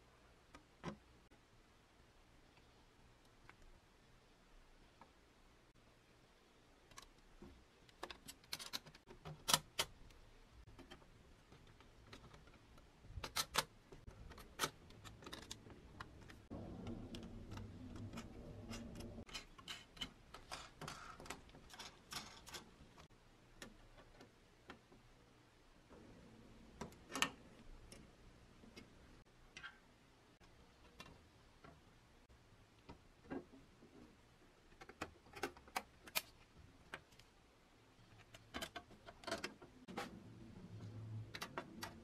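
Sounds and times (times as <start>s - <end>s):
rubbing and scraping: 10.6s - 23.1s.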